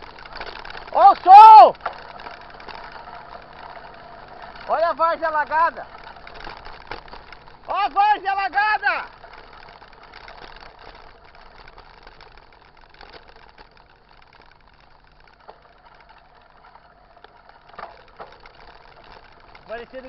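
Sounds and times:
bike tyres hissing on wet dirt: 0.0s - 20.0s.

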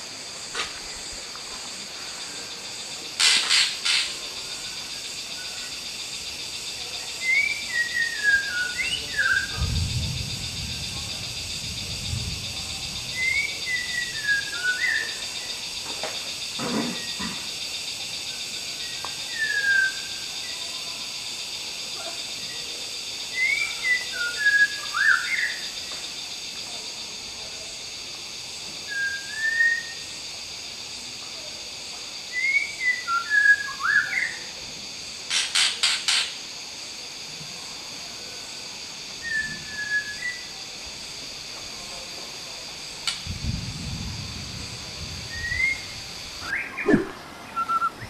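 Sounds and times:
high-pitched hiss: 0.0s - 48.0s
bird singing whistled phrases: 7.2s - 9.6s, 13.2s - 15.2s, 18.8s - 20.2s, 28.9s - 30.0s, 32.4s - 34.4s, 39.2s - 40.5s, 45.3s - 48.0s.

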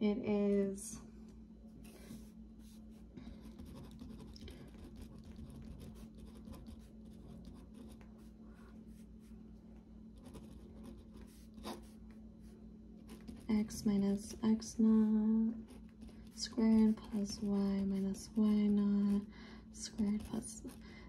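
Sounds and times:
faint steady low hum: 0.0s - 21.0s
pen scratching on paper: 2.2s - 8.3s, 10.1s - 12.0s, 13.0s - 14.6s, 15.6s - 19.3s, 19.9s - 20.8s.

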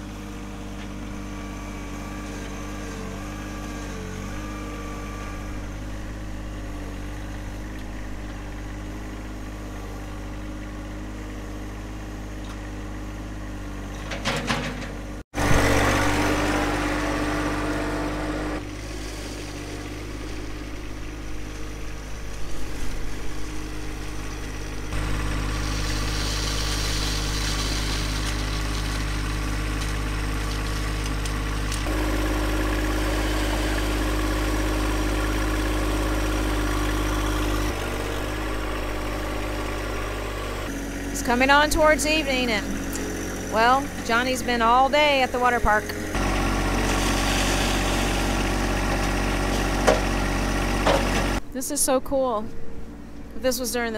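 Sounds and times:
tractor diesel engine running: 0.0s - 53.9s.

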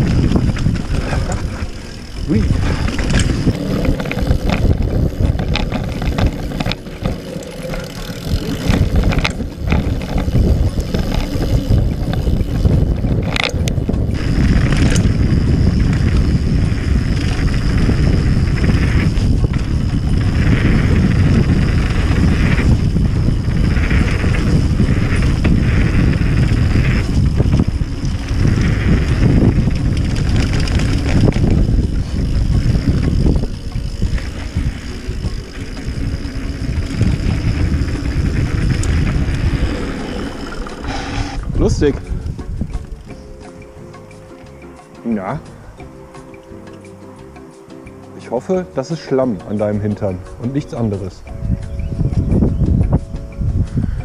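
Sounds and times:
bike knocks and rattles: 0.0s - 40.9s
tyres rolling on dirt: 0.0s - 45.4s
wind buffeting microphone: 0.0s - 54.0s.

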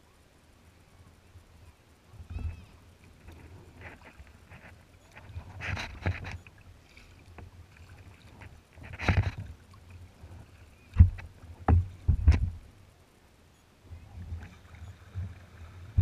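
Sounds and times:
paddle strokes splashing water: 3.0s - 12.5s.

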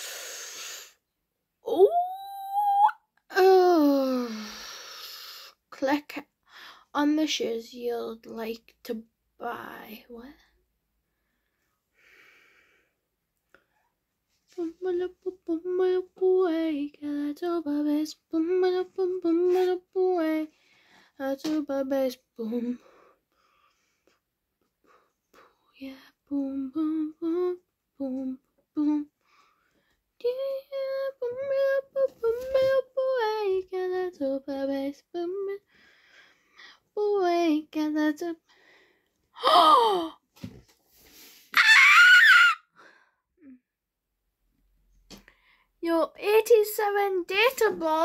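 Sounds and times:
girl singing without words: 1.6s - 4.6s, 14.4s - 23.1s, 25.4s - 29.2s, 30.2s - 35.8s, 36.6s - 38.6s, 39.3s - 40.2s, 45.8s - 48.0s.

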